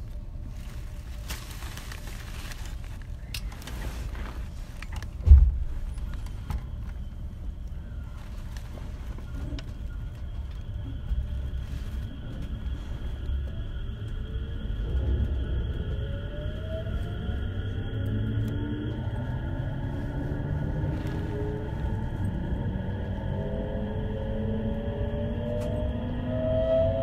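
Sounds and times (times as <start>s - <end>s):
steady low rumble: 0.0s - 27.0s
heavy thump: 5.2s - 5.9s.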